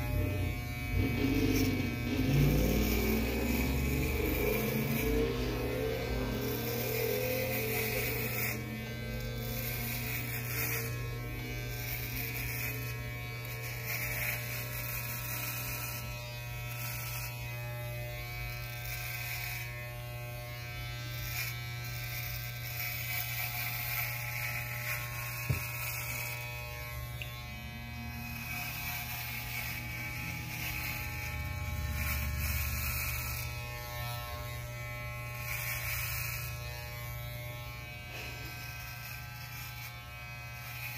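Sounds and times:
electric hair clippers buzzing: 0.0 - 40.9.

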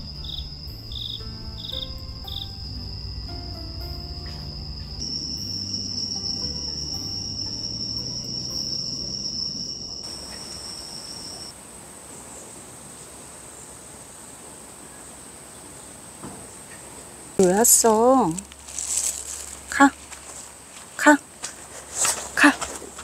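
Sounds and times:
high steady insect note: 0.0 - 11.6
crickets trilling: 0.0 - 23.0.

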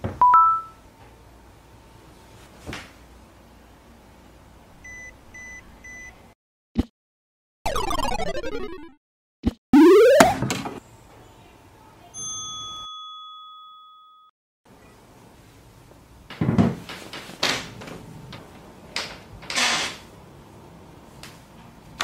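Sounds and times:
bell-like ding: 12.2 - 14.3.

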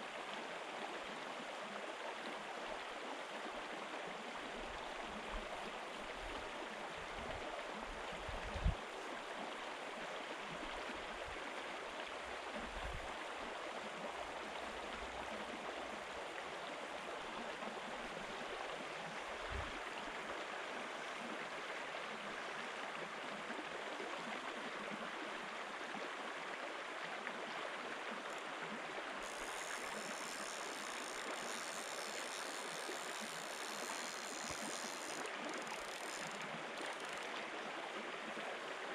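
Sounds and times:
river flowing over stones: 0.0 - 38.9.

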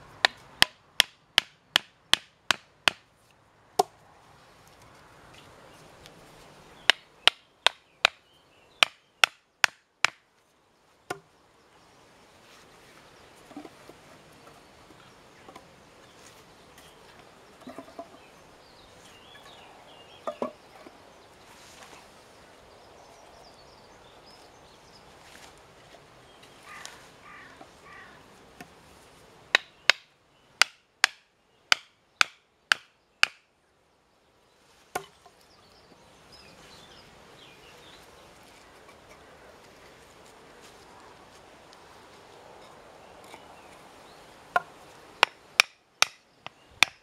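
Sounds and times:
hatchet striking wood: 0.2 - 3.0, 6.9 - 8.2, 8.8 - 10.2, 29.5 - 33.4, 44.6 - 47.0
wooden poles clunking: 16.8 - 18.2, 20.2 - 21.0.

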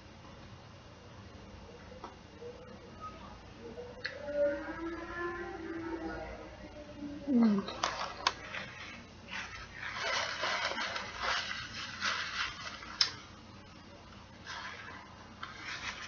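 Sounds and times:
paper napkin rustling: 8.0 - 13.4, 14.4 - 16.0.

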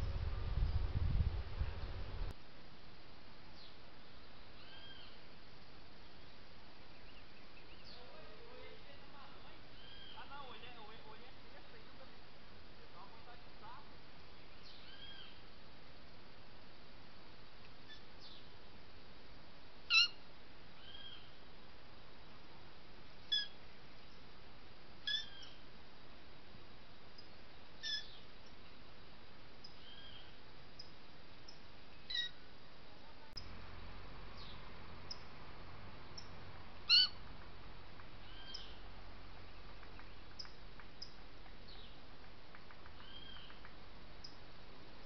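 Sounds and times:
steady background hiss: 0.0 - 45.0
faint high bird chirps: 3.6 - 5.2, 9.3 - 10.3, 19.9 - 20.2, 23.3 - 23.6, 25.0 - 25.6, 27.2 - 28.8, 31.5 - 32.4, 36.9 - 37.2, 38.2 - 38.8, 43.0 - 43.6
bird calling: 9.3 - 10.4, 19.9 - 20.2, 23.3 - 23.6, 25.0 - 25.6, 27.8 - 28.3, 32.0 - 32.4, 36.1 - 37.2, 38.2 - 38.9, 43.0 - 44.4
animal high chirping calls: 19.9 - 20.2, 23.3 - 23.6, 25.1 - 25.6, 27.8 - 28.2, 32.1 - 32.4, 36.9 - 37.2.

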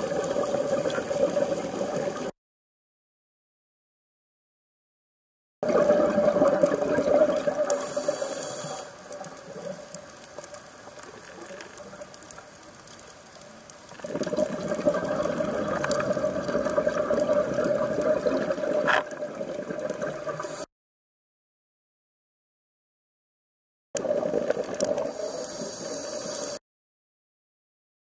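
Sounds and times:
underwater exhaled air bubbling: 0.0 - 2.3, 5.6 - 12.2, 13.9 - 20.6, 24.0 - 26.6.

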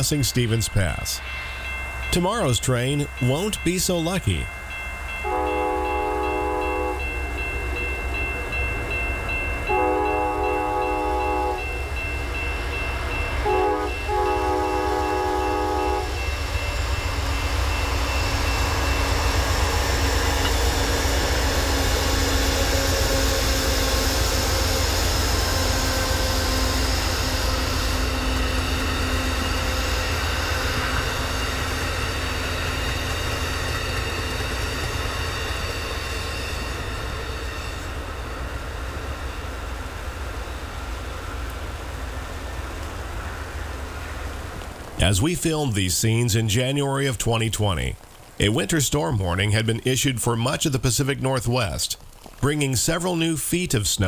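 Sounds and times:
train passing with rumble: 0.0 - 51.1
locomotive horn chord: 5.2 - 7.2, 9.7 - 11.7, 13.4 - 16.3.

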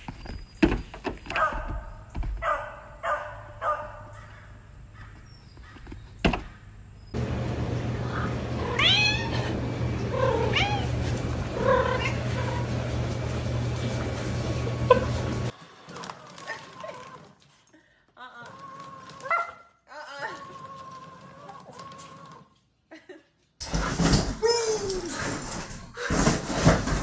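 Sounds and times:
steady low hum: 6.6 - 15.5
cat meowing: 8.6 - 9.4.

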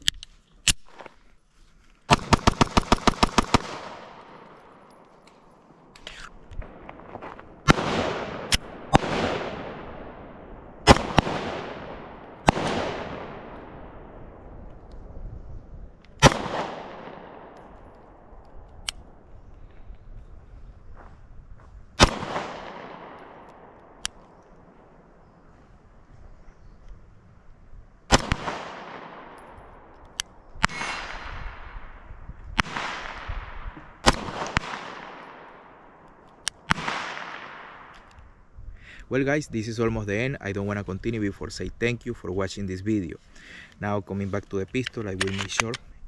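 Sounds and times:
pistol shots echoing: 2.1 - 5.2, 7.6 - 14.4, 16.2 - 18.3, 22.0 - 24.4, 28.1 - 29.9, 30.6 - 32.0, 32.6 - 38.1.

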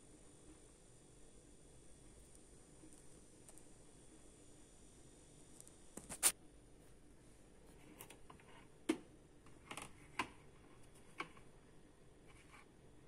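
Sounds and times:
faint irregular clicks and taps: 7.7 - 11.5.

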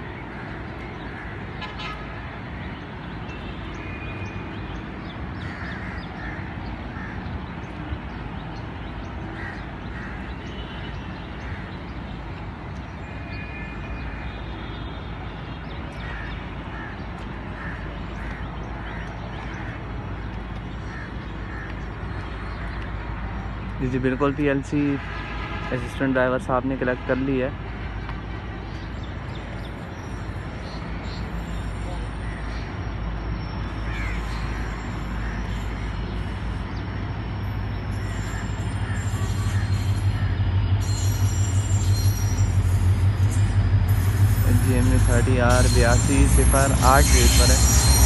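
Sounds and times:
crows cawing: 0.3 - 2.4, 5.4 - 7.3, 9.3 - 11.9, 15.9 - 19.9, 20.8 - 22.8, 33.7 - 36.7, 37.9 - 40.6
steady low rumble: 39.6 - 48.0.

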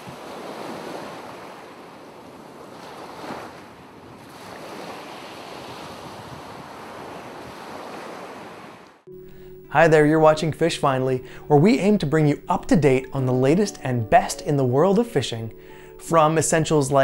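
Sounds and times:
ocean waves: 0.0 - 9.6.

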